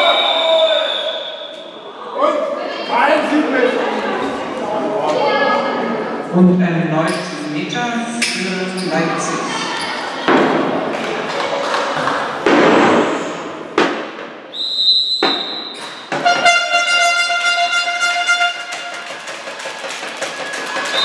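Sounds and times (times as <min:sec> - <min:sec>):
spectators noise in hall: 0:00.0 - 0:21.0
referee's whistle blast: 0:14.5 - 0:18.4
horn blast: 0:16.1 - 0:19.2.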